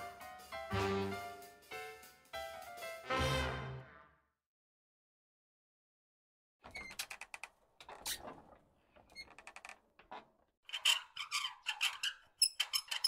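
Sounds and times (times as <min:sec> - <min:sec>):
cartoon creaks and squeaks: 0:10.7 - 0:13.0.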